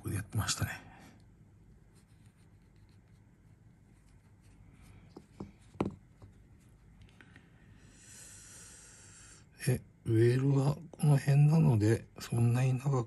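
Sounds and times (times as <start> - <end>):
soft knocks: 5.2 - 6.3.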